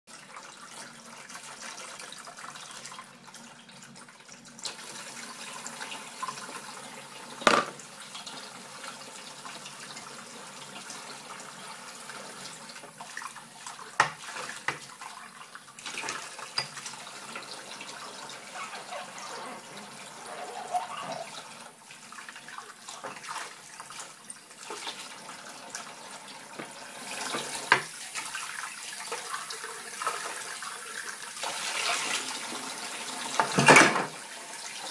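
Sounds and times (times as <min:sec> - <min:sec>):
dishes clinking together: 0:07.4 - 0:07.8
tap running into sink: 0:07.4 - 0:07.8, 0:14.0 - 0:14.9, 0:26.5 - 0:27.9, 0:33.3 - 0:34.2.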